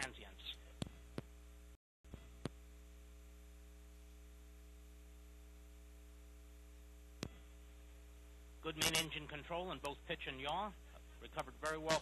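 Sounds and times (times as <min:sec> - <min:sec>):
faint mains hum: 0:00.0 - 0:12.0.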